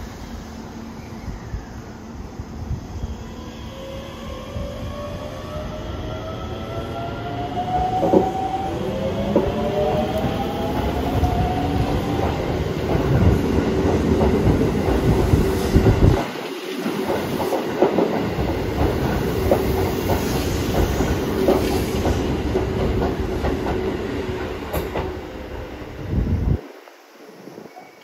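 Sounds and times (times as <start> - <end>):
train steady whine: 0.0 - 28.0
train wheels clicking over rail joints: 12.1 - 25.7.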